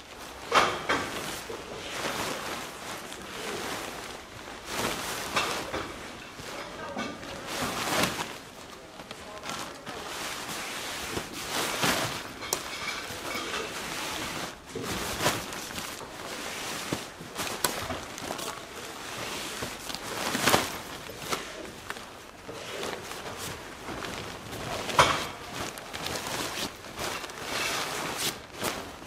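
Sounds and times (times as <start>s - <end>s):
tent fabric rustling: 0.0s - 29.0s.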